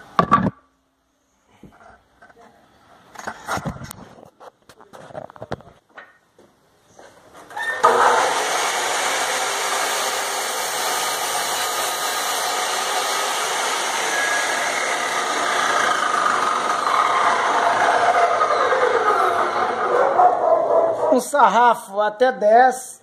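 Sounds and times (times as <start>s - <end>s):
saw blade cutting wooden board: 7.6s - 19.8s
cut-off saw motor running: 7.8s - 19.9s.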